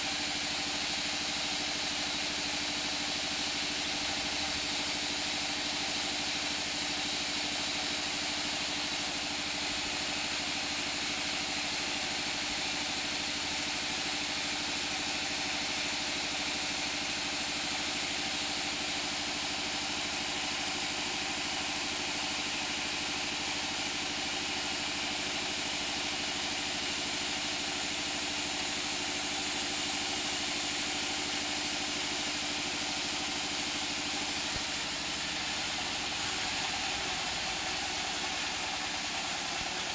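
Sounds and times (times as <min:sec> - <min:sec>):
saw blade hissing in wood: 0:34.1 - 0:39.9.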